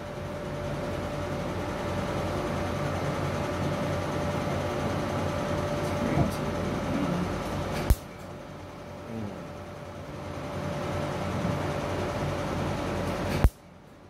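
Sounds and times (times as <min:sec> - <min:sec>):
machine hum with held tone: 0:00.0 - 0:14.0.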